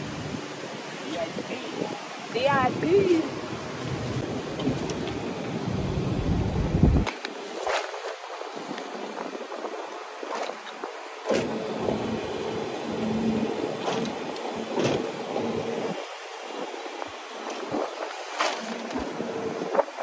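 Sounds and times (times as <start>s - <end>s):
air rushing past microphone: 2.6s - 7.1s.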